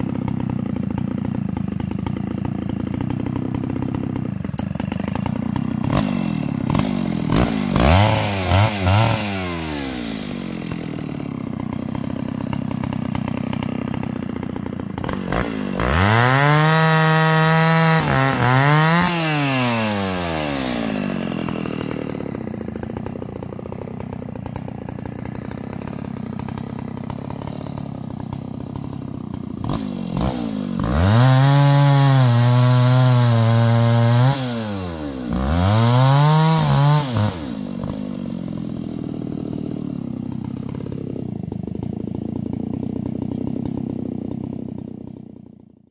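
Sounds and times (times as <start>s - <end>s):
small engine revving: 0.0s - 45.2s.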